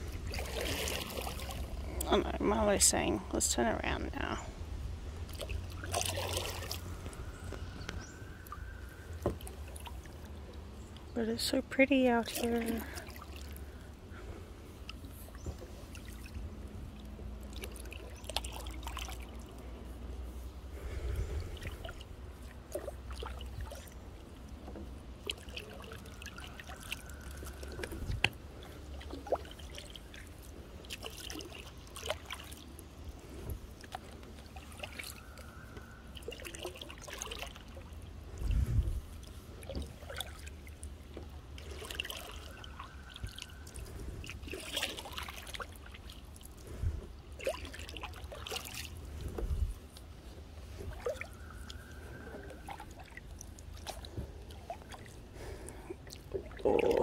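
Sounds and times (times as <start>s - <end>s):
steady low rumble: 0.0s - 18.2s, 38.0s - 39.7s
paddle pulling through water: 0.0s - 57.0s.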